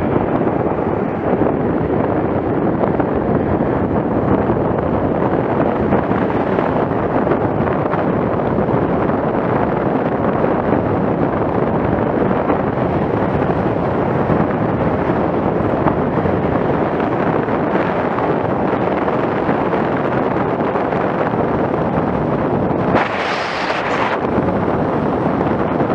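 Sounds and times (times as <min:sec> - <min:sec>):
road rumble: 0:00.0 - 0:25.9
wind buffeting microphone: 0:00.0 - 0:25.9.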